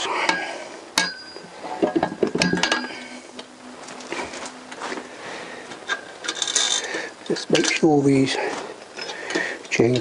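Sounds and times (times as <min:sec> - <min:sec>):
metal parts clinking: 0:05.9 - 0:06.9.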